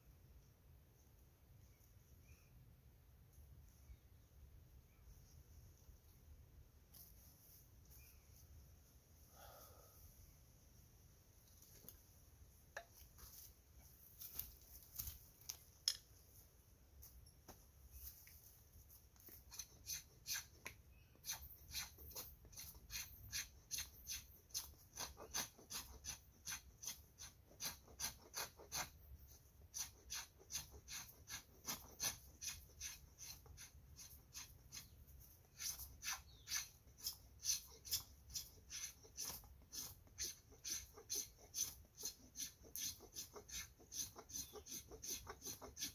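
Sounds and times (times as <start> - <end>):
knife scraping: 29.7 - 45.9.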